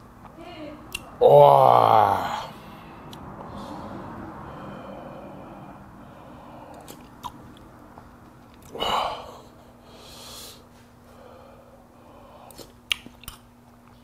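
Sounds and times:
person chewing: 6.7 - 7.7, 12.4 - 14.0.

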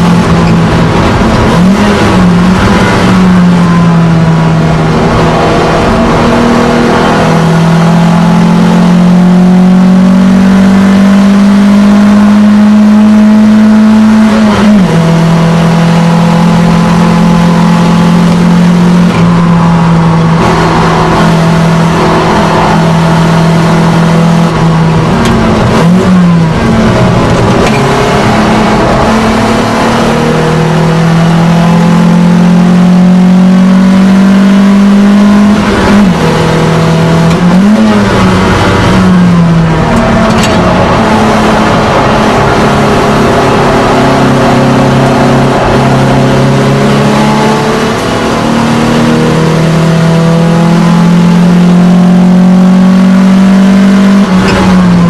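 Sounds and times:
car engine under load: 0.0 - 55.0.

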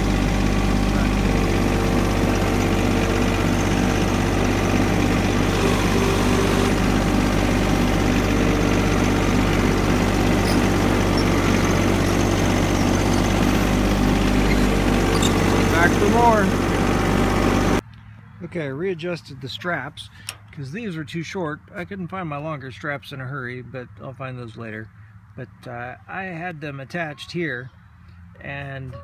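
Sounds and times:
tractor diesel engine running: 0.0 - 17.8.

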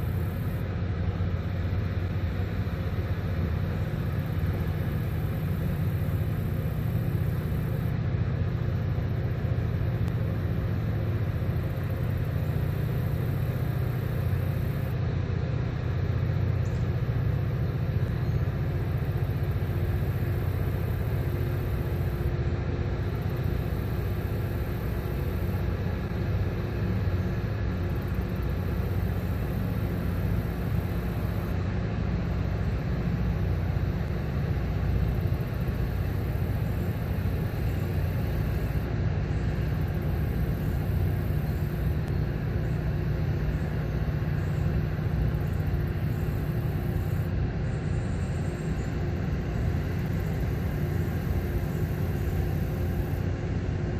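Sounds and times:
boat diesel engines rumbling: 0.0 - 53.9.

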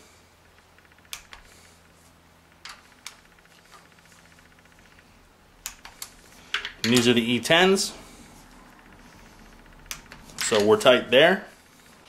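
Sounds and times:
torque wrench clicks: 0.5 - 1.5, 5.6 - 7.1, 8.8 - 10.8
torque wrench ratchet ticking: 8.7 - 10.8.

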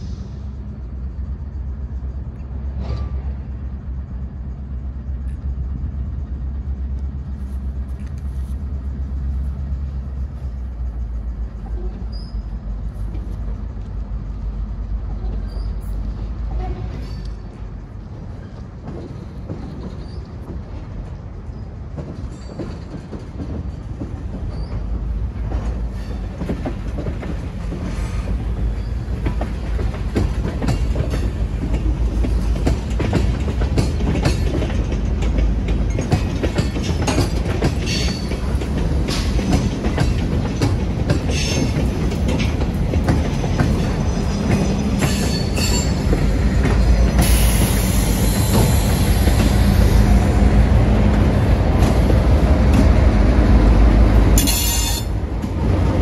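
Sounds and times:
diesel freight train rolling past: 0.0 - 56.0
train wheels clicking over rail joints: 0.0 - 56.0
high wheel squeal: 11.6 - 12.8, 15.2 - 17.7, 43.8 - 50.0, 54.4 - 55.2.

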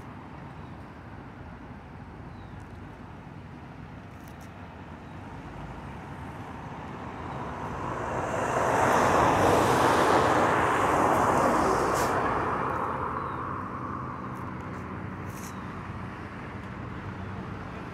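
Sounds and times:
vehicle passing by: 5.9 - 16.6.

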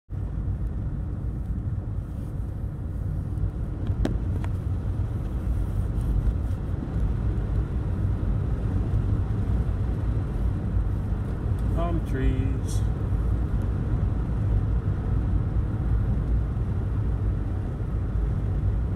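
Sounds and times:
car engine and road noise: 0.1 - 18.9.

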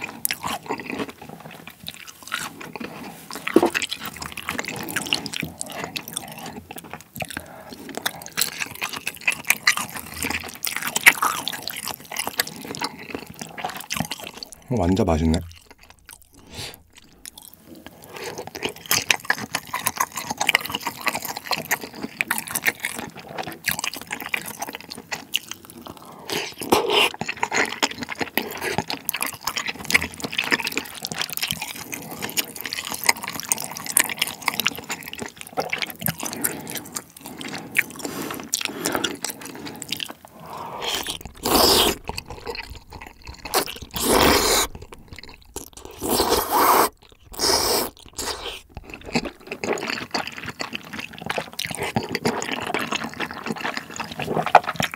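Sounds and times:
wet sticky chewing: 0.0 - 54.9
loud slurps: 15.6 - 17.4, 36.2 - 52.9.

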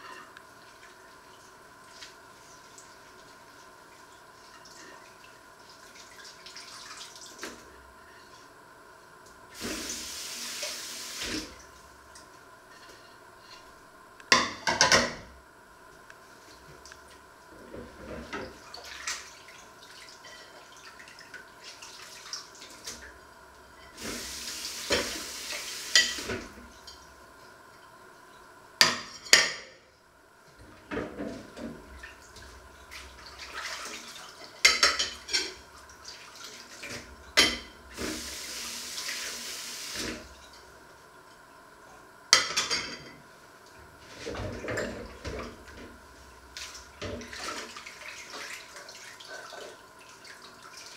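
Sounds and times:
dishes clinking in sink: 14.3 - 15.3, 20.2 - 20.6, 25.9 - 27.1, 28.8 - 29.8, 34.4 - 35.6, 36.9 - 37.8, 42.3 - 43.2, 44.2 - 45.9
tap running: 24.0 - 26.5.

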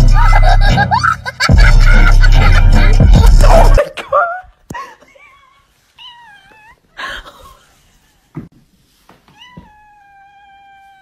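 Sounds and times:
cat meowing: 6.0 - 6.9, 9.3 - 11.0.

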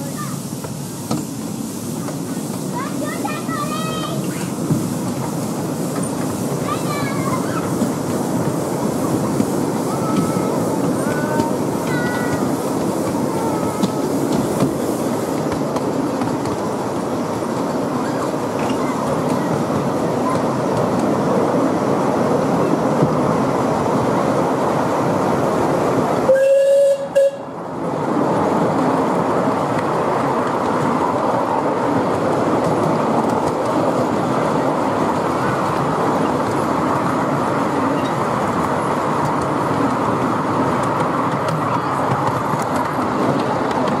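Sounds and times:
railway carriages rumbling and clattering: 0.0 - 44.0
steam locomotive whistle: 26.3 - 27.5.

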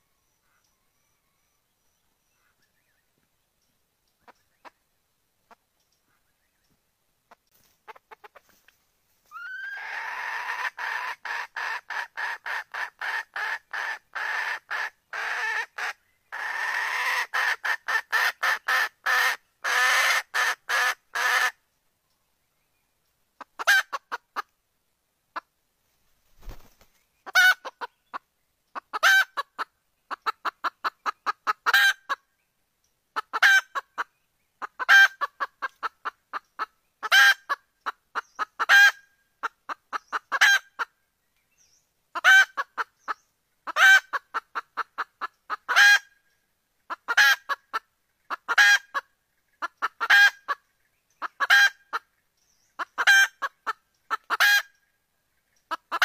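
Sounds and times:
hen clucking call: 9.3 - 21.6, 23.4 - 24.5, 27.3 - 28.2, 28.8 - 32.2, 43.7 - 46.1, 46.9 - 49.0, 52.8 - 54.7.

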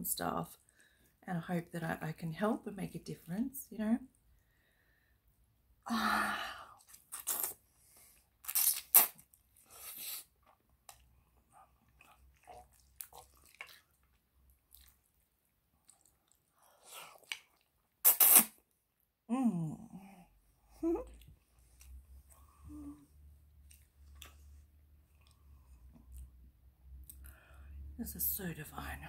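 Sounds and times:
chewing and slurping noodles: 6.8 - 18.4.

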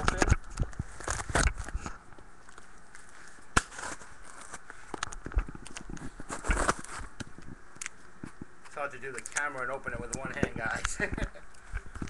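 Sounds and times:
cardboard box ripped open: 3.6 - 4.6, 6.2 - 7.1.

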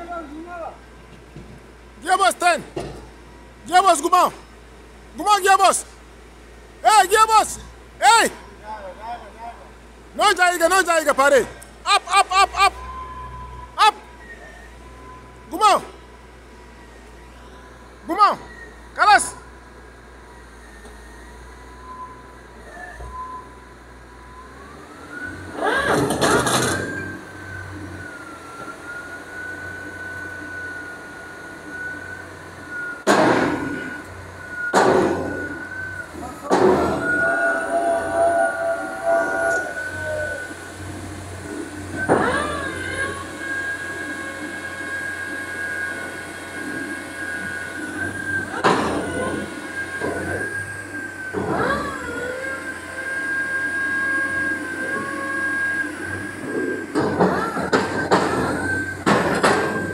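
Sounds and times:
drilling rig high whine: 33.6 - 59.9
drilling rig low hum: 35.3 - 59.9
low hum: 36.2 - 42.2
loud bangs: 36.4 - 39.9.

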